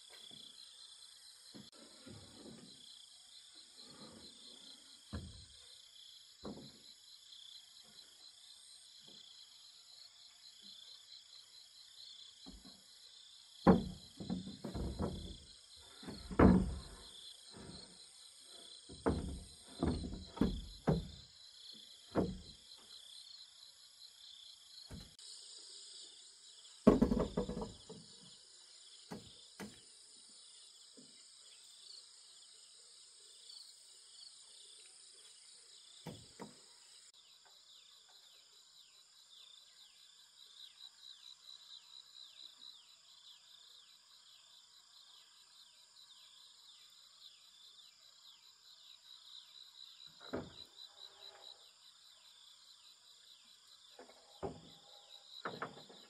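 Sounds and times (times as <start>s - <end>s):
wooden knocks and thuds: 1.5s - 2.8s, 5.0s - 5.7s, 6.4s - 6.9s, 12.4s - 12.8s, 13.6s - 22.9s, 24.9s - 25.2s, 26.8s - 28.3s, 29.1s - 29.9s, 36.0s - 36.8s, 50.1s - 50.8s, 53.9s - 56.0s.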